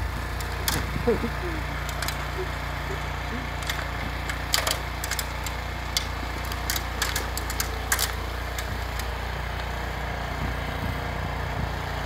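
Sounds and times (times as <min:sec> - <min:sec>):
snow blower engine running: 0:00.0 - 0:12.0
sharp clicks and ticks: 0:00.3 - 0:09.7.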